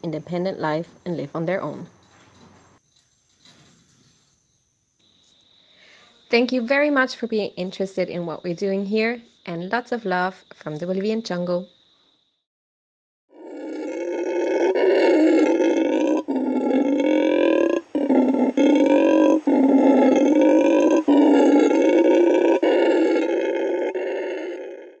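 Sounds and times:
howler monkey roaring: 13.3s - 25.0s.

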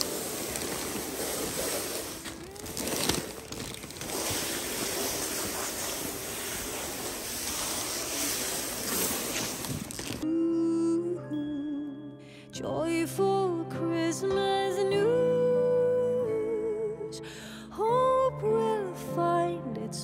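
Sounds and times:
handling rustles: 0.0s - 10.2s.

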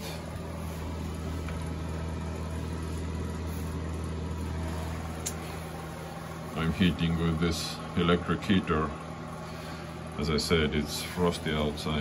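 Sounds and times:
fan heater humming: 0.0s - 12.0s.

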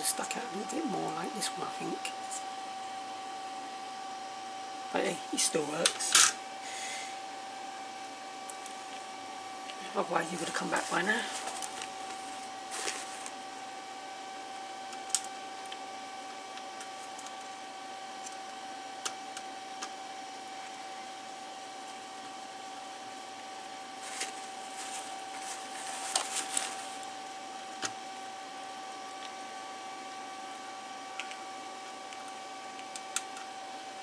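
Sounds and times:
high-pitched electrical whine: 0.0s - 34.0s
paper towel rustling: 10.2s - 13.4s, 24.0s - 27.1s.

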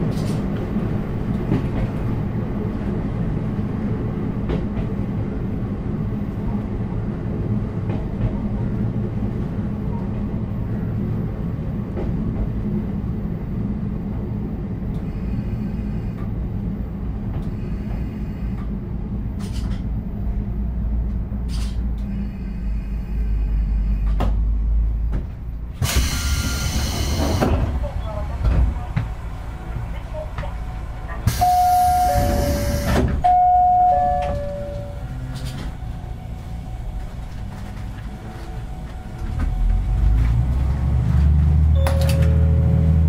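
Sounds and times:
wheels rumbling on rails: 0.0s - 43.0s
diesel engine droning: 20.4s - 43.0s.

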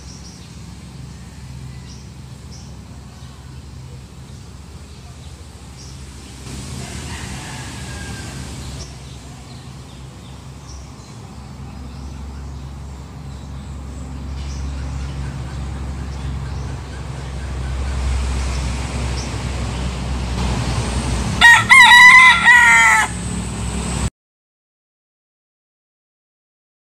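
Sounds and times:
rooster crowing: 6.4s - 9.6s, 21.4s - 23.4s.

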